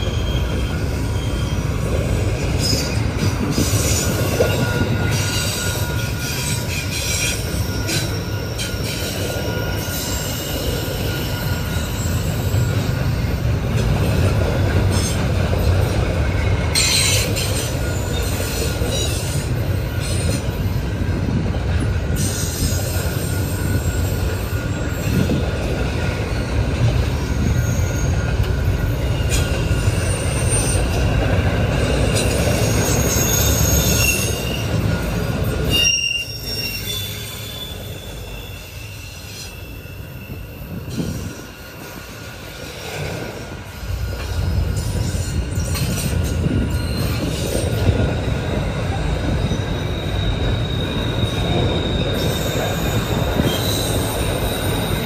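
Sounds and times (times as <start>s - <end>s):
high-pitched wheel squeal: 0.0s - 12.9s, 26.3s - 28.4s, 31.9s - 42.2s, 44.7s - 55.0s
train wheels rumbling on rail: 0.0s - 55.0s.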